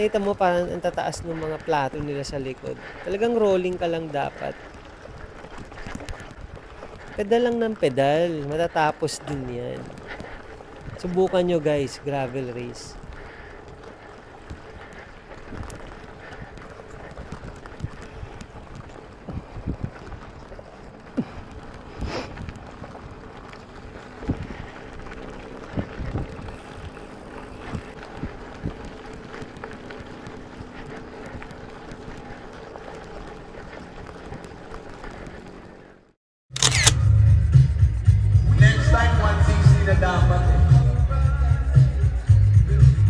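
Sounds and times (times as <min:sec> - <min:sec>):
bike rattling over rocks: 0:00.0 - 0:36.0
wind and tyre noise: 0:00.0 - 0:43.0.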